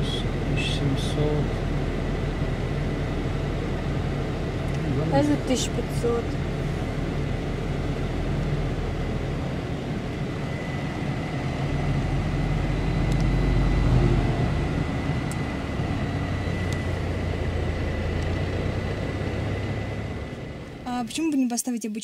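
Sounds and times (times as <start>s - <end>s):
car engine and road rumble: 0.0s - 21.4s.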